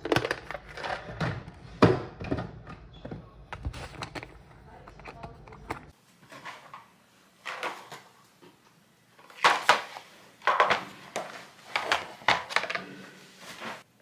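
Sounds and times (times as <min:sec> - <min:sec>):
plastic bottles knocking and rattling: 0:00.0 - 0:06.0, 0:09.3 - 0:12.9.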